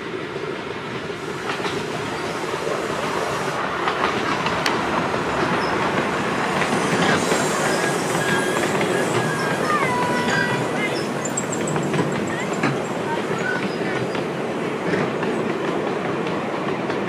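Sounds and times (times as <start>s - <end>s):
miniature steam train passing: 0.0s - 17.0s
coaches clicking over track: 3.8s - 17.0s.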